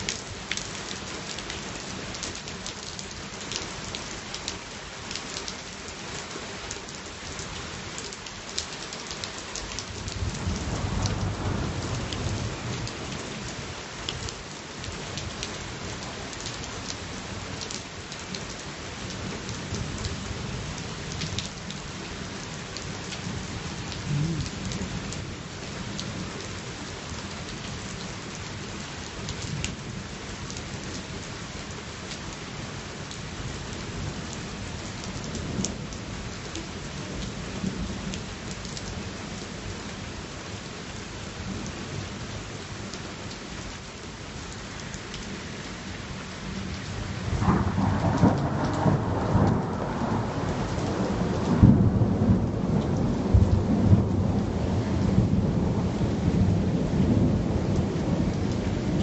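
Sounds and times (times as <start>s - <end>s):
steady rain hissing: 0.0s - 59.0s
low roll of thunder: 10.1s - 12.6s, 47.3s - 59.0s.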